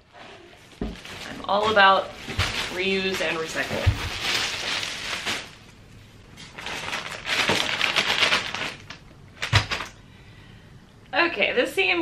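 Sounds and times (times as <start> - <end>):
plastic packaging crinkling: 0.4 - 10.0.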